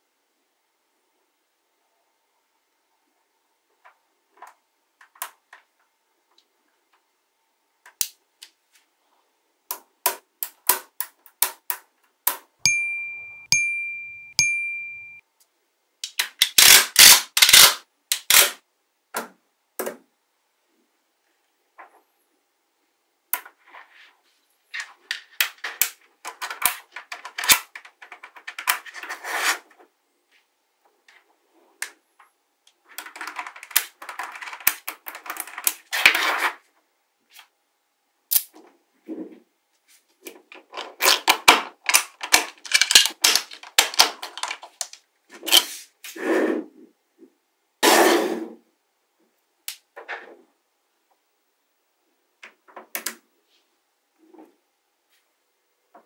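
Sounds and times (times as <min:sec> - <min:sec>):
magnetic balls clicking and rattling: 0:40.5 - 0:45.0.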